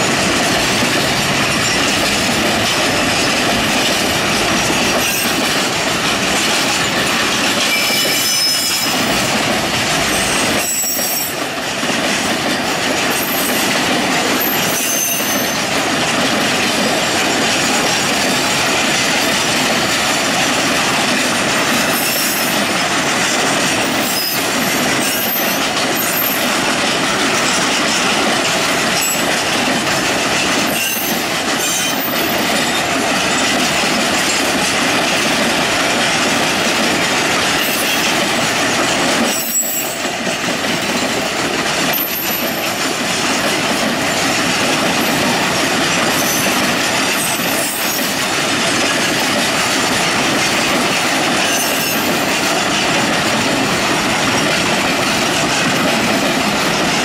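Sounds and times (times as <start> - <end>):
steel wheels rolling on rail: 0.0 - 57.0
high wheel squeals: 7.7 - 9.1, 10.1 - 11.4, 14.4 - 15.6, 39.3 - 40.0.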